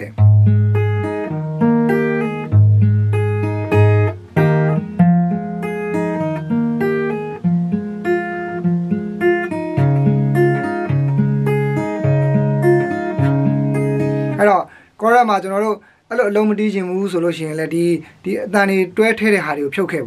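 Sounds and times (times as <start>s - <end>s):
fingerpicked acoustic guitar: 0.0s - 15.0s.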